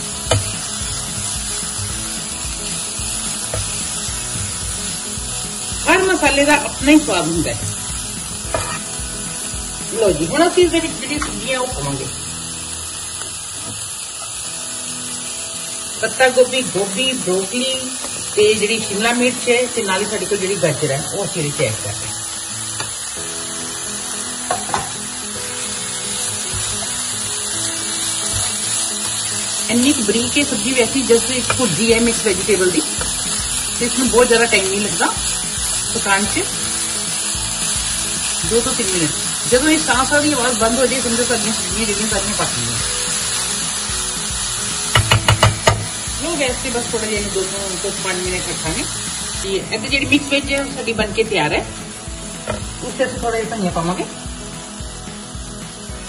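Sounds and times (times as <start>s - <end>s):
onions sizzling in a frying pan: 0.0s - 56.0s
spatula scraping wok: 7.0s - 9.1s
spatula scraping a pan: 8.5s - 8.9s
sharp knock: 44.9s - 45.9s.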